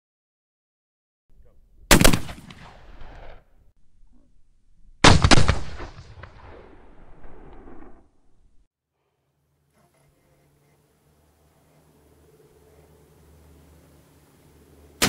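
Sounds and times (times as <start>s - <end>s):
rifle shots: 1.9s - 3.5s, 5.0s - 7.8s.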